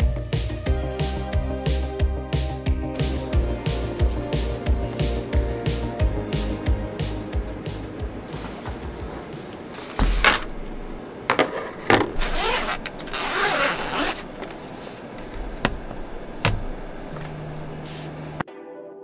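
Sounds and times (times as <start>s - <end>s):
fabric sleeve rasping rustle: 12.2s - 15.2s.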